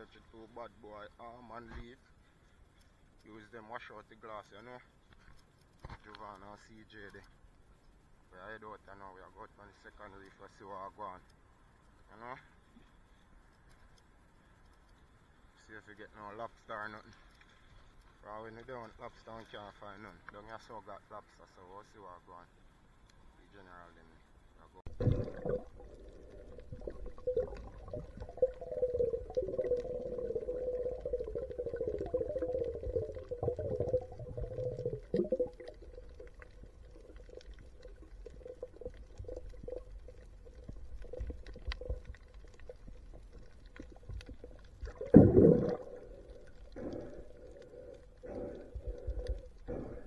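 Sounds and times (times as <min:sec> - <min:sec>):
steady underwater hum: 0:07.2 - 0:50.0
water sloshing underwater: 0:24.8 - 0:50.0
muffled water surge: 0:24.9 - 0:40.1, 0:44.0 - 0:50.0.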